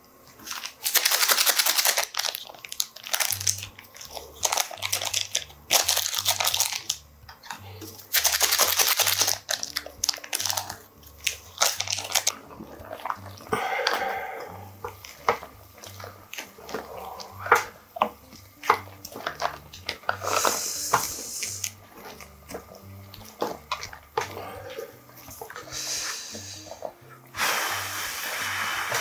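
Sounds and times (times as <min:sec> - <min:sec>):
brief rushing hiss: 0:27.3 - 0:29.0.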